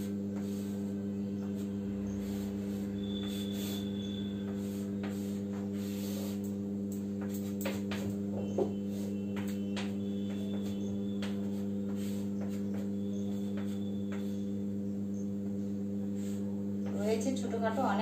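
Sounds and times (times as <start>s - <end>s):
electrical mains hum: 0.0s - 18.0s
chalk tapping on blackboard: 1.4s - 14.5s.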